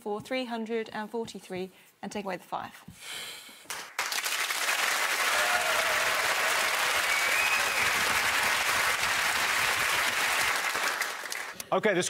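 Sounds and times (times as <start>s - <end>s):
audience applauding: 3.7s - 11.6s.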